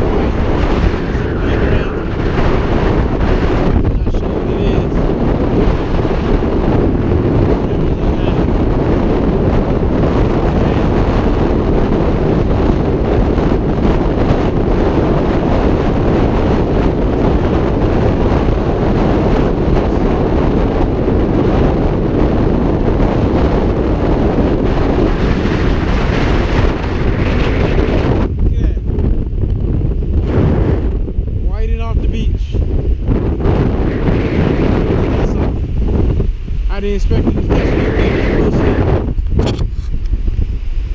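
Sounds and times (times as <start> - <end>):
surf washing on beach: 0.0 - 29.0
wind buffeting microphone: 0.0 - 40.9.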